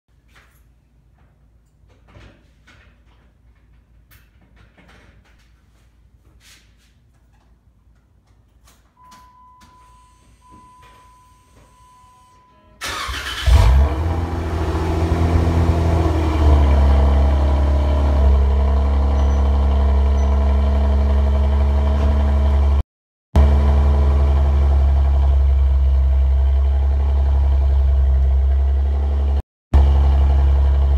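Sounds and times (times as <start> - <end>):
car engine starting and idling: 12.8 - 22.8, 23.4 - 30.9.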